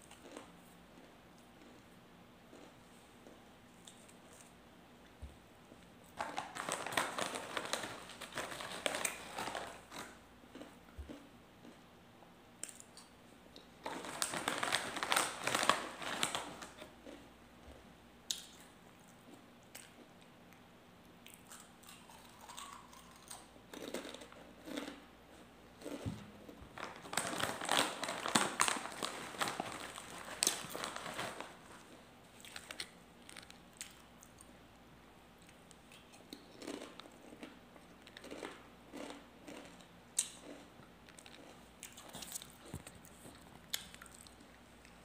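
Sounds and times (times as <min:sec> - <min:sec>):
crunching crisp snack: 0:00.0 - 0:01.8, 0:02.5 - 0:04.5, 0:06.2 - 0:11.8, 0:21.2 - 0:26.1, 0:32.3 - 0:34.6, 0:35.4 - 0:45.0
quiet chewing: 0:00.0 - 0:05.2, 0:35.4 - 0:45.0.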